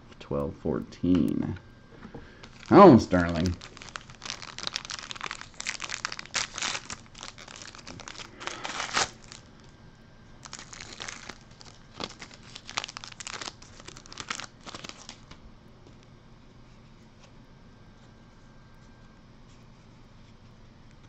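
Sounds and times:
cards rustling: 2.4 - 9.5, 10.4 - 15.3
foil wrapper tearing and crinkling: 2.4 - 9.6, 10.4 - 15.3.

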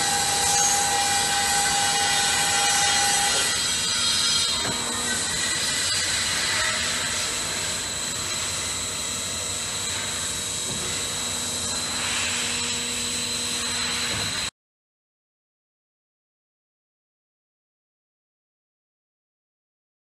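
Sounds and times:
band saw mechanical drone: 0.0 - 14.4
high whine: 0.0 - 14.5.

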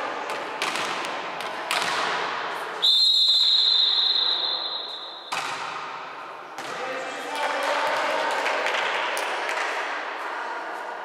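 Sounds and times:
referee whistle blast: 2.8 - 5.3
ball being struck: 5.2 - 6.8.

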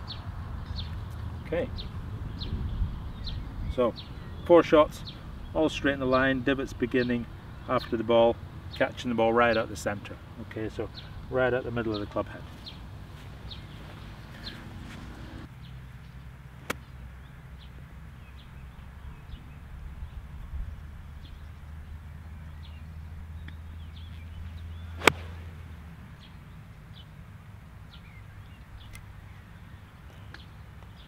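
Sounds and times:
golf club striking ball: 24.9 - 25.8.

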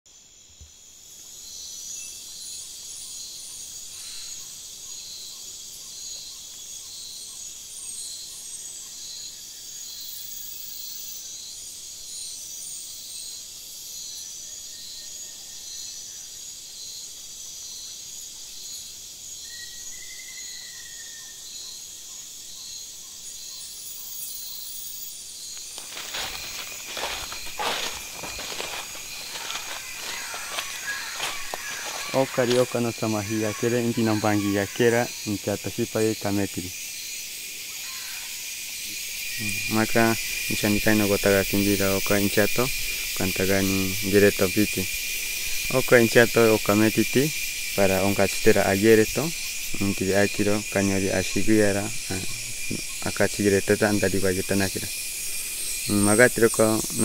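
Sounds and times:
insect chorus drone: 0.1 - 57.0
drawn-out whistled call: 25.9 - 34.5.

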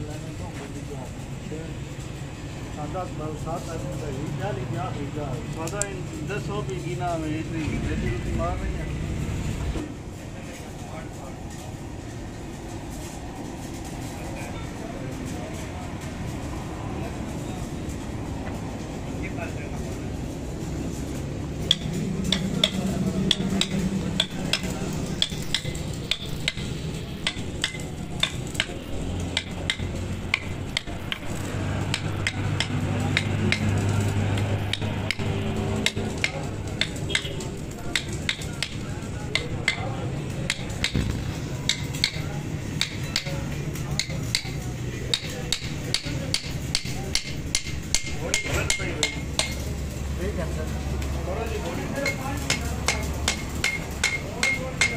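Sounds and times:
hammer tapping on metal: 21.5 - 49.7, 52.0 - 54.9.

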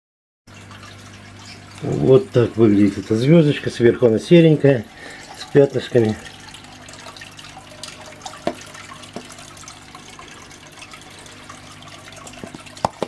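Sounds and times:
aquarium water trickling: 0.5 - 13.0
plastic cup knocking against tank: 8.4 - 9.4, 12.3 - 13.0.

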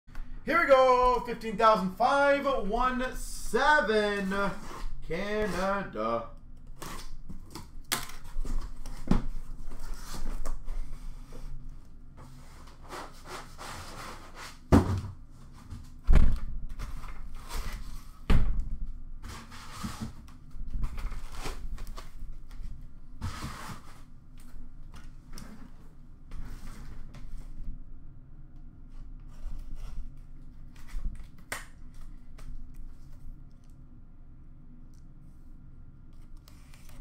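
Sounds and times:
cardboard boxes rustling and scraping: 8.2 - 11.6, 19.2 - 20.2, 23.2 - 24.1.

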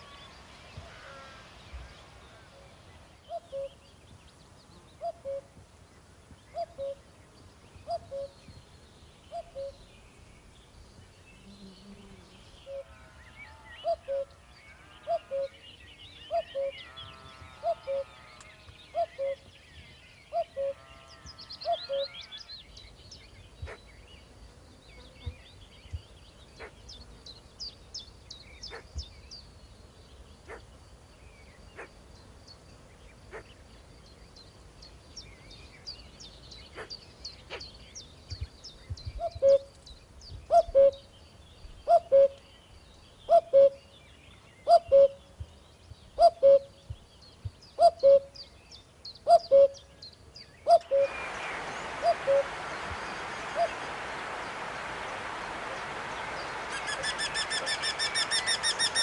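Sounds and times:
steady hiss: 0.0 - 5.0, 50.2 - 59.0
small birds chirping: 0.0 - 59.0
cuckoo calling: 3.3 - 3.8, 5.0 - 5.5, 6.5 - 7.0, 7.8 - 8.4, 9.3 - 9.8, 13.8 - 14.3, 15.1 - 15.6, 16.3 - 16.8, 17.6 - 18.1, 18.9 - 19.5, 20.3 - 20.8, 21.6 - 22.2, 39.2 - 39.8, 40.5 - 41.1, 41.9 - 42.5, 43.3 - 43.8, 44.7 - 45.2, 46.2 - 46.8, 47.8 - 48.4, 49.2 - 49.9, 50.6 - 59.0.

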